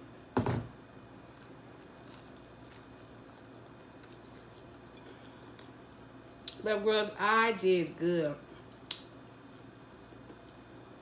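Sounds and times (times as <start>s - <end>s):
soft chewing: 1.2s - 6.6s, 8.5s - 11.0s.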